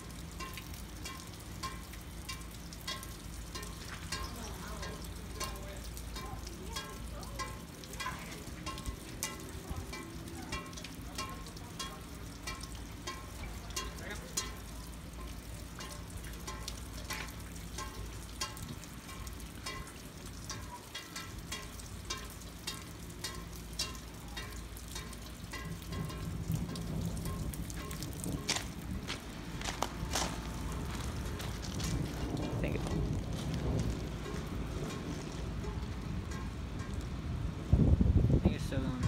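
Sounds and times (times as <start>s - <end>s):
sharp drip ticks: 0.0s - 39.0s
steady rain: 0.0s - 39.0s
low rumble: 25.6s - 39.0s.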